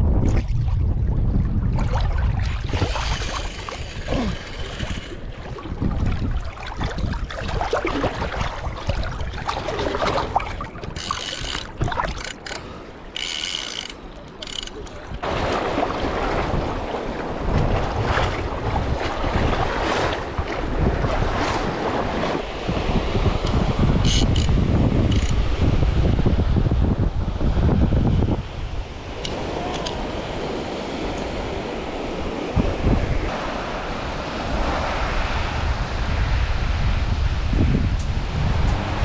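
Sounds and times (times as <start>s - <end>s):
wind buffeting microphone: 0.0s - 12.6s, 15.0s - 39.0s
seawater sloshing and splashing: 0.1s - 24.4s.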